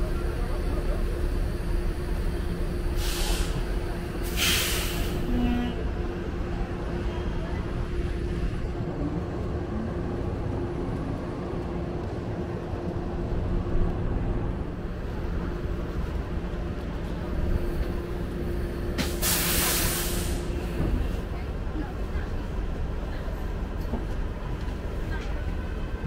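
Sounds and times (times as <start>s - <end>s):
trolleybus low rumble: 0.0s - 26.0s
compressed air hiss: 4.2s - 5.2s, 19.0s - 20.5s.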